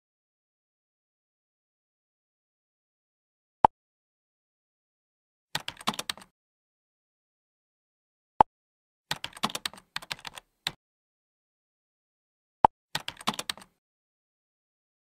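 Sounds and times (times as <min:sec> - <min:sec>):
keyboard typing: 0:05.6 - 0:06.3, 0:09.1 - 0:10.8, 0:12.9 - 0:13.8.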